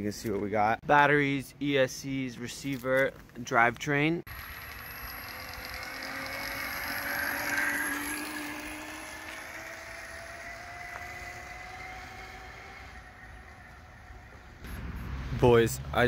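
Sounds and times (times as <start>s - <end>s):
electric scooter motor whine: 4.3s - 15.0s
road and wind noise: 4.3s - 16.0s.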